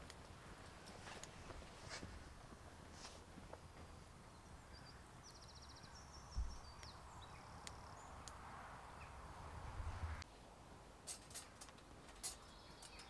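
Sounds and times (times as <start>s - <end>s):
wood fire crackling: 0.0s - 4.7s
soft hiss: 0.0s - 13.0s.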